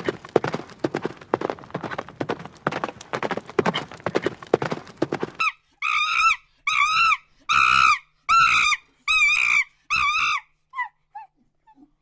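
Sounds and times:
horse hooves clip-clopping: 0:00.0 - 0:05.5.

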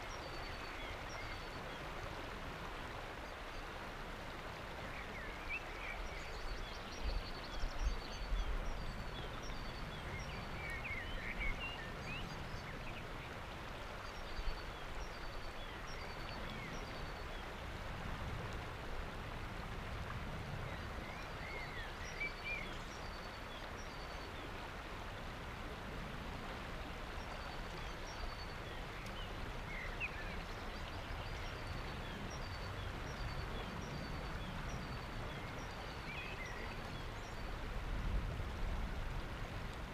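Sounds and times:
river water rushing over rocks: 0:00.0 - 0:39.9.

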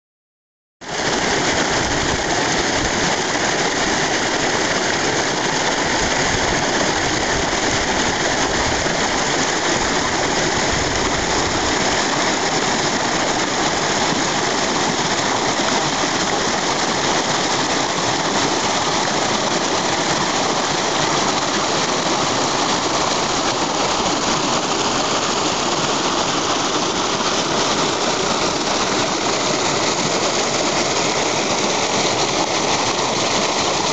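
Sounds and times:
stream rushing over rocks: 0:00.8 - 0:33.9.

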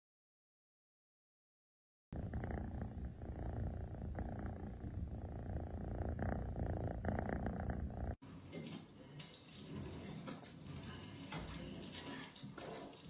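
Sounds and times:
cat purring: 0:02.2 - 0:08.2.

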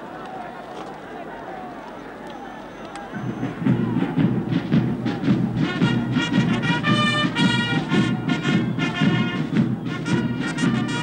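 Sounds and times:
brass band music: 0:05.1 - 0:11.0.

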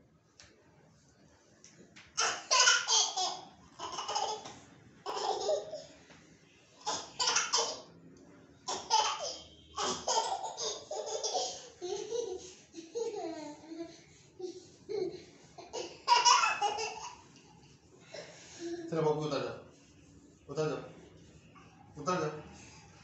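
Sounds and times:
toddler laughing: 0:02.2 - 0:05.9, 0:06.8 - 0:07.9, 0:08.7 - 0:17.2.

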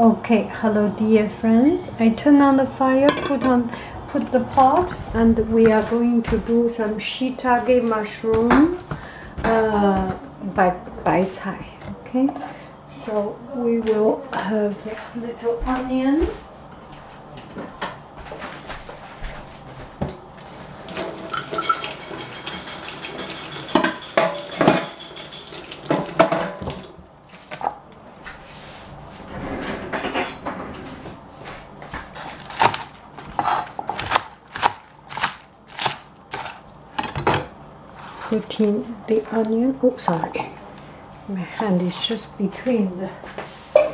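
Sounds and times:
kitchen items clattering: 0:03.0 - 0:03.7, 0:20.8 - 0:26.9
knife chopping on plastic board: 0:32.4 - 0:36.6.

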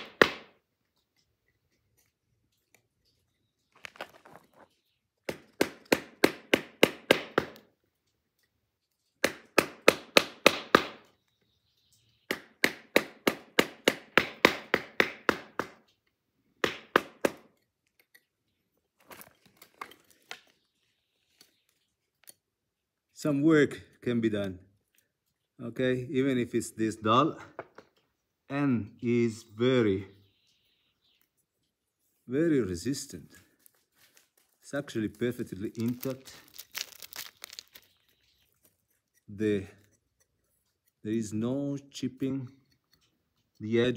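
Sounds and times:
knife hacking hard wood: 0:00.0 - 0:00.6, 0:05.2 - 0:07.7, 0:09.2 - 0:11.1, 0:12.3 - 0:15.8, 0:16.6 - 0:17.5.

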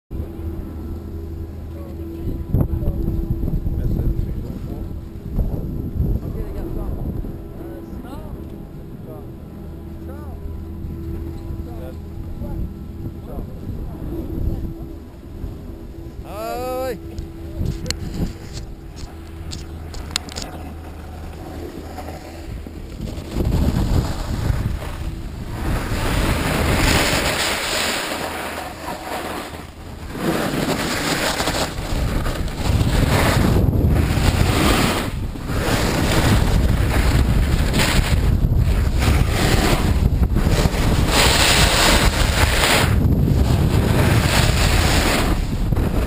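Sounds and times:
wind rushing over microphone: 0:00.1 - 0:46.0
skis scraping on hard snow: 0:17.6 - 0:46.0.

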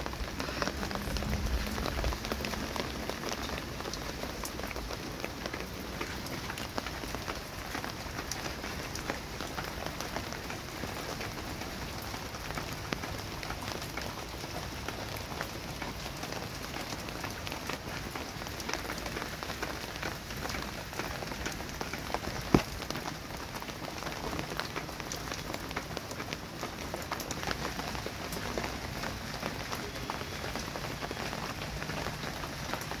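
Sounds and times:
steady rain falling: 0:00.0 - 0:33.0.

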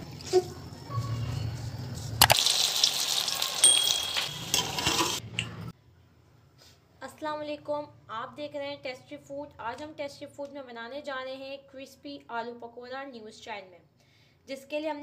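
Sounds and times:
food sizzling in hot oil: 0:02.2 - 0:05.2.

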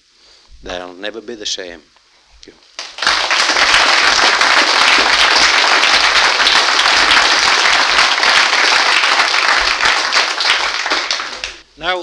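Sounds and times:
audience applauding: 0:02.8 - 0:11.6.

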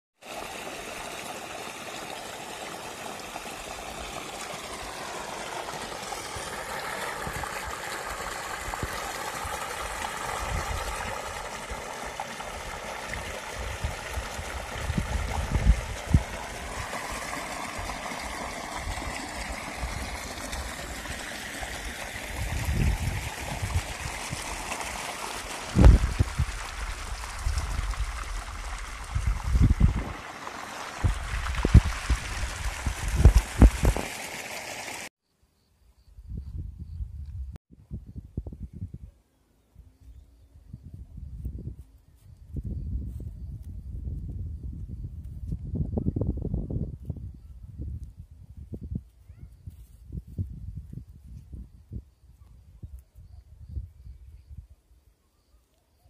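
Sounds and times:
flowing water rushing: 0:00.2 - 0:35.1.

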